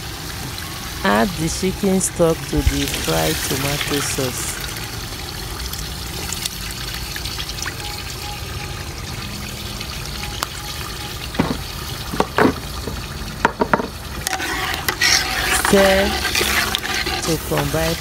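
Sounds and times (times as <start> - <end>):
sharp knocks: 11.4 - 14.0
liquid pouring through a strainer: 14.2 - 17.4.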